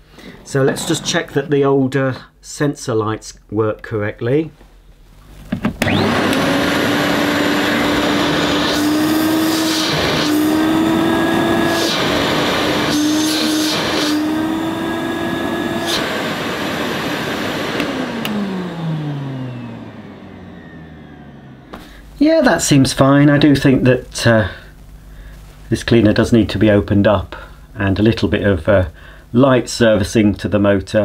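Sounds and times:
vacuum cleaner running: 5.3s - 22.8s.

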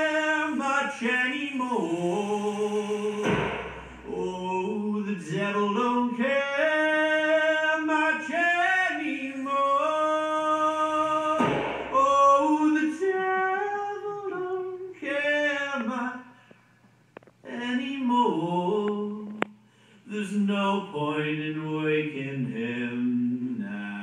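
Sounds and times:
person singing long notes: 0.0s - 14.9s
breathy hiss: 0.6s - 4.4s.

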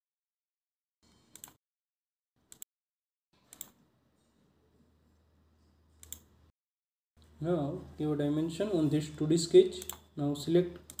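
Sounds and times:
computer mouse clicks: 1.3s - 1.6s, 3.5s - 3.8s, 6.0s - 6.3s, 10.8s - 11.0s.

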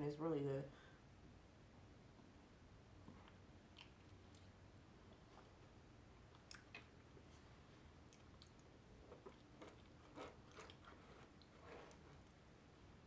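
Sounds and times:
chewing with mouth clicks: 3.1s - 5.3s, 6.2s - 7.2s, 8.0s - 12.4s
fork scraping plastic bowl: 9.6s - 12.3s.

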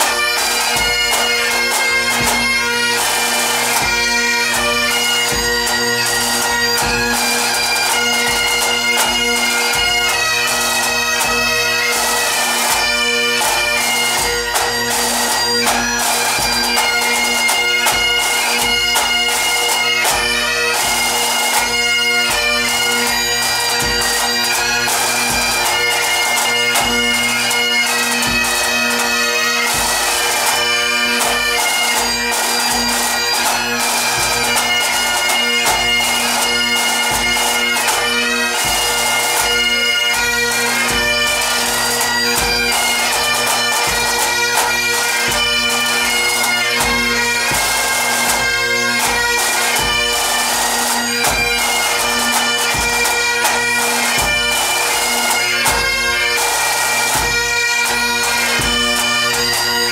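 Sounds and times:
drums beating: 0.0s - 7.2s
bagpipes playing march melody: 0.0s - 59.9s.

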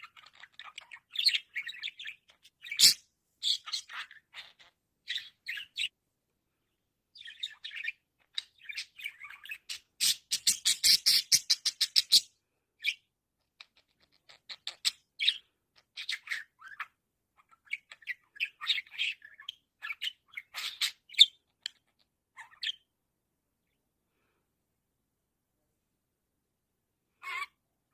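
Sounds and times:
budgerigar chirping: 0.0s - 5.9s, 7.2s - 22.9s, 27.2s - 27.6s.

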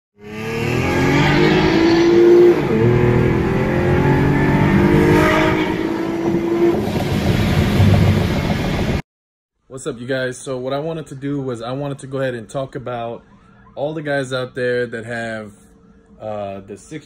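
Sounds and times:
car engine accelerating hard: 0.2s - 9.0s.

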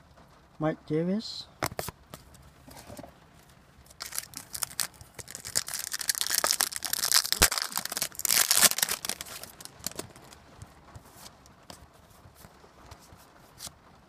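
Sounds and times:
wrapper tearing and crinkling: 3.9s - 10.4s.

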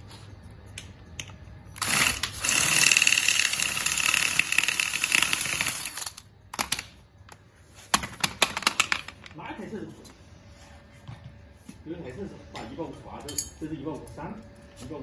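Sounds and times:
cordless drill whining: 1.8s - 6.2s.

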